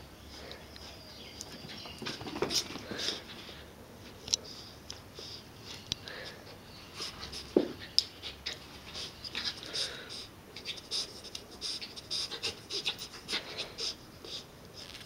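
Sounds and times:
dog panting: 0:06.8 - 0:14.5.

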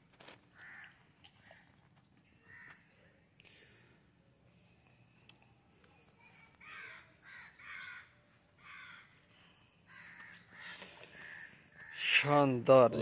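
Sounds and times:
crows cawing: 0:00.5 - 0:01.2, 0:02.4 - 0:03.0, 0:06.6 - 0:12.4.

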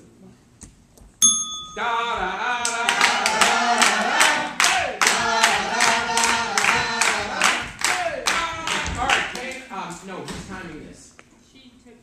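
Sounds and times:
voices singing: 0:01.8 - 0:09.6
group clapping in time: 0:02.6 - 0:09.7.

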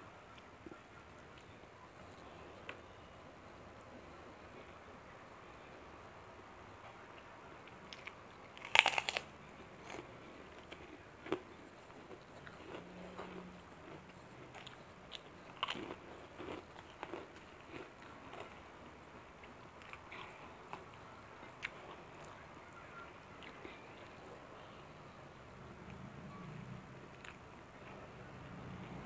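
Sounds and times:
chewing with crunches: 0:07.1 - 0:24.9, 0:25.8 - 0:29.0
crunchy cracker bite: 0:07.9 - 0:10.1.

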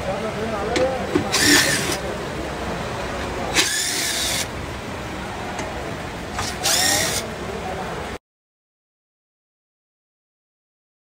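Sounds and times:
impact wrench whining: 0:01.1 - 0:02.0, 0:03.5 - 0:04.7, 0:06.2 - 0:07.3.

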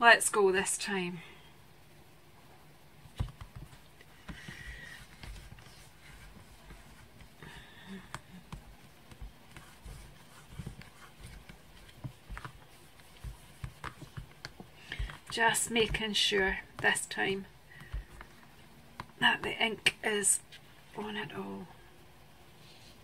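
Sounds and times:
hands rubbing on plastic plate: 0:03.1 - 0:16.9.

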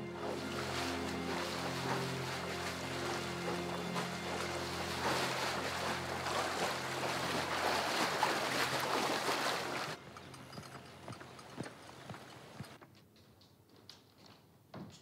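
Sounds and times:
water splashing and rushing: 0:00.0 - 0:10.0
low sustained music chord: 0:00.0 - 0:10.6.

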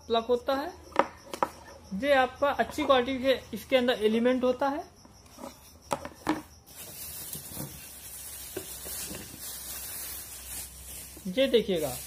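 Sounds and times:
plastic packaging rustling: 0:06.7 - 0:12.0.

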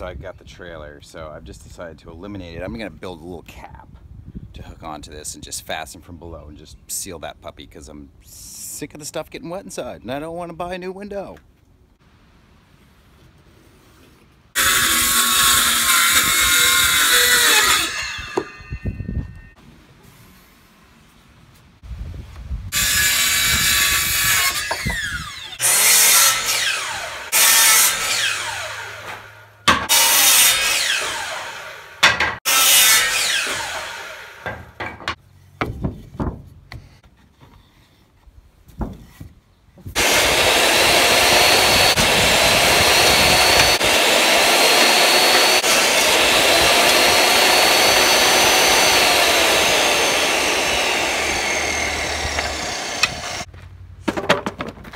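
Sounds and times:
table saw running: 0:14.6 - 0:18.9, 0:22.8 - 0:34.6, 0:40.0 - 0:53.5
power saw cutting wood: 0:14.6 - 0:19.0, 0:22.7 - 0:34.8, 0:40.0 - 0:53.5.

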